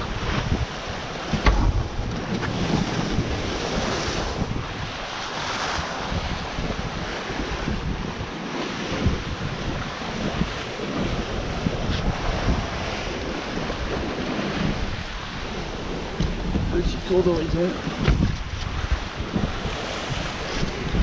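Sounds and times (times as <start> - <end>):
sea rushing past hull: 0.0 - 21.0
wind buffeting microphone: 0.0 - 21.0
sharp thump: 18.0 - 18.4.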